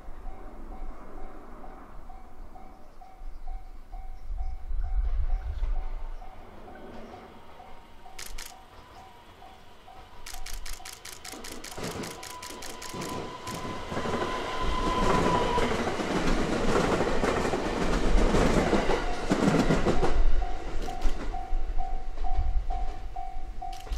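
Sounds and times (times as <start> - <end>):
level-crossing warning bell: 0.0 - 10.3, 18.8 - 23.9
electric train passing: 0.0 - 23.9
wheels clicking on rails: 8.0 - 14.3, 23.6 - 23.9.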